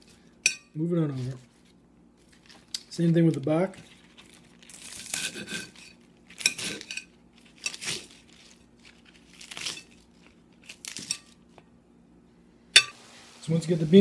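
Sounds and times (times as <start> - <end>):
knife crunching through stalks: 4.0 - 11.4.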